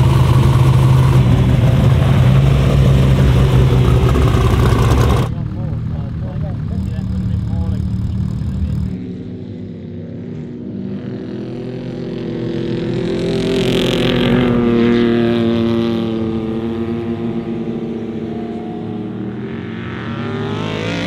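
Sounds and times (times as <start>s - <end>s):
truck engine running hard: 0.0s - 9.0s.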